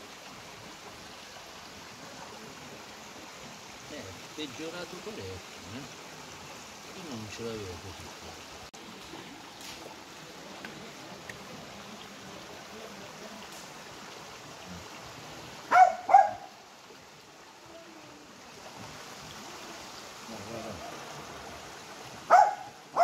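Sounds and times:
stream running over rock: 0.0 - 23.0
dog barking: 15.7 - 16.5, 22.3 - 23.0.

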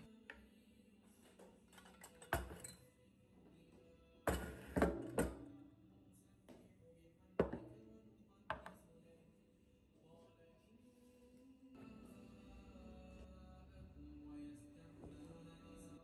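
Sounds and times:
soft background music: 0.0 - 16.0
objects knocking on wooden table: 4.3 - 5.4, 7.4 - 7.8, 8.5 - 8.8.

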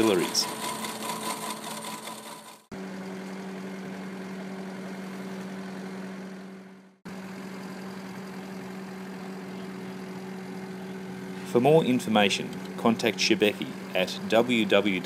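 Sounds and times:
concrete milling attachment cutting: 0.0 - 2.7
skid steer engine running: 0.0 - 15.0.

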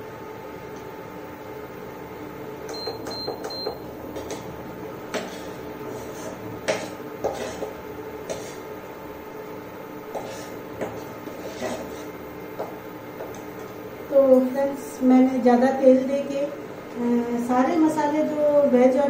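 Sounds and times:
steady electric hum: 0.0 - 19.0
metal spoon scraping frying pan: 5.1 - 8.6, 10.1 - 12.2.

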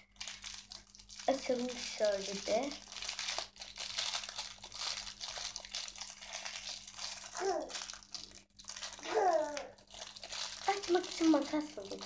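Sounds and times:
plastic packet crinkling: 0.0 - 12.0
girl's voice short sounds: 7.4 - 7.7, 9.0 - 9.8.

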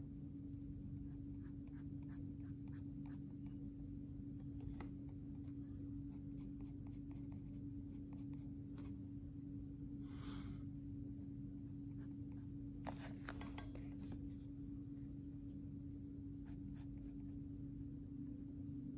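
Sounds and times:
steady low hum: 0.0 - 18.9
pencil scratching on paper: 1.0 - 3.6, 6.1 - 9.4, 11.2 - 14.4, 16.4 - 17.4.

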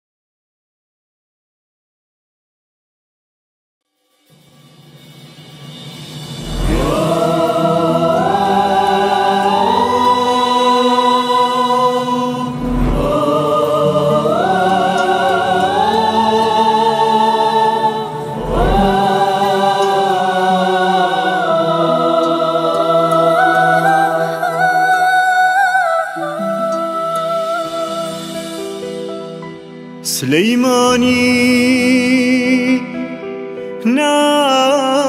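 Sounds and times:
deep drum booms: 5.7 - 8.5
wordless choir voices: 6.4 - 35.0.

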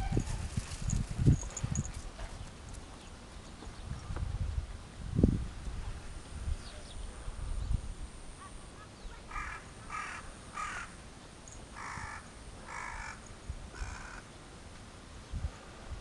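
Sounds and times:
crow cawing: 9.3 - 11.0, 11.8 - 13.2, 13.8 - 14.2.

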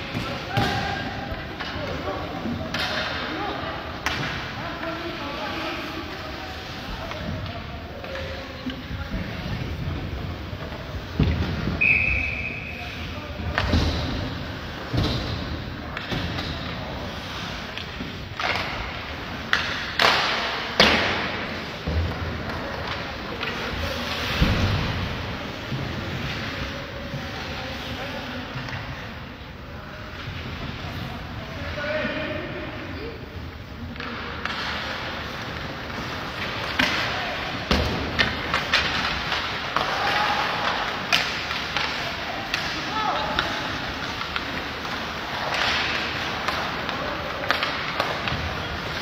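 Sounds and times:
skates scraping on ice: 12.9 - 29.0, 33.4 - 49.0
hockey stick and puck cracks: 17.7 - 21.4, 33.9 - 49.0.

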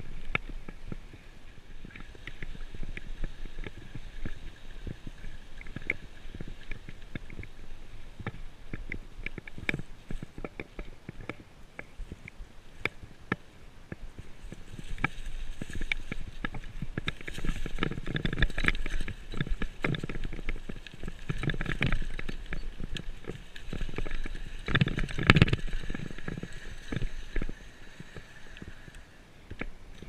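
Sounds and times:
tyres crunching on leaves and dirt: 14.2 - 29.8
bike rattling over bumps: 14.5 - 28.8.

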